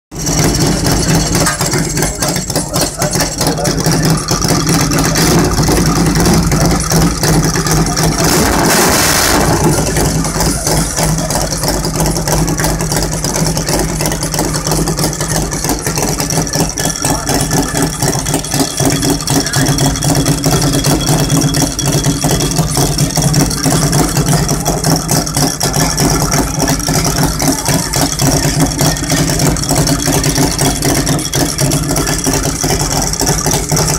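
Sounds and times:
motorcycle engine running: 0.1 - 33.9
loud rushing burst: 8.2 - 11.0.

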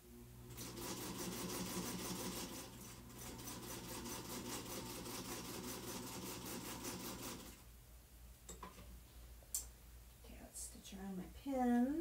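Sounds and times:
sewing machine stitching: 0.6 - 7.6.

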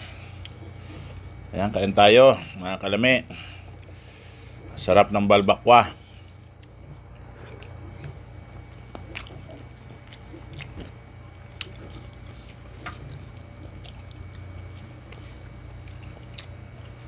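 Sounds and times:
steady low hum: 0.0 - 17.0
wet chewing: 0.4 - 1.5, 3.7 - 4.1, 6.3 - 17.0
lip smacks: 6.4 - 17.0.

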